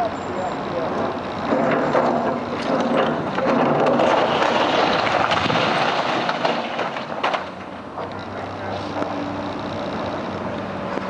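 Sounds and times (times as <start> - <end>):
excavator engine running: 0.0 - 11.0
masonry crashing down: 1.5 - 7.6.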